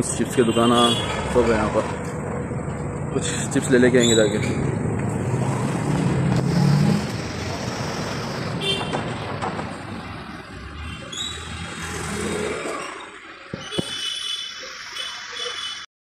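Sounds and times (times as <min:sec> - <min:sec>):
steady traffic hum: 0:00.0 - 0:15.9
motor vehicle running nearby: 0:01.1 - 0:13.1.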